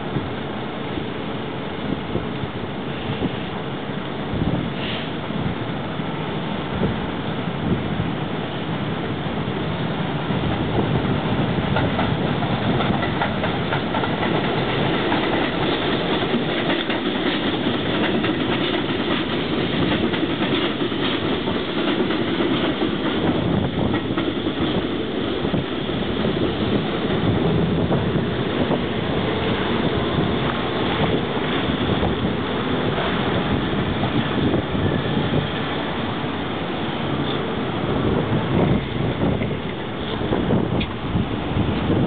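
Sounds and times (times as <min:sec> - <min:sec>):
subway train rail noise: 0:00.0 - 0:42.0
wheels clicking over rail joints: 0:10.4 - 0:42.0.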